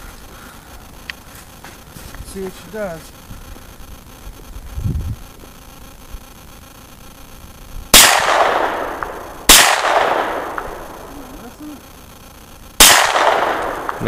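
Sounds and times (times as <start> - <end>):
gunshots with long echo: 7.9 - 11.3, 12.8 - 14.0.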